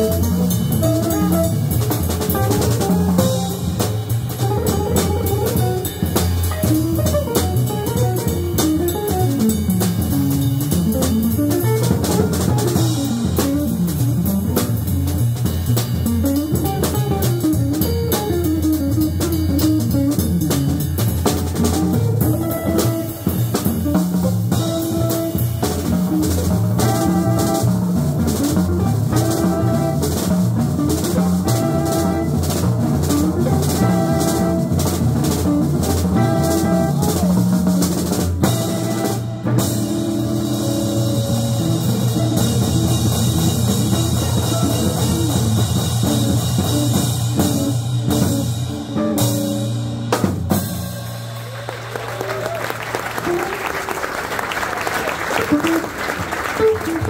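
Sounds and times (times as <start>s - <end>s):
saxophone: 0.0s - 3.8s, 26.8s - 28.0s, 28.7s - 37.6s, 38.4s - 48.3s, 55.3s - 57.0s
drum kit with busy cymbals: 0.0s - 53.6s
upright bass: 0.0s - 53.9s, 55.3s - 57.0s.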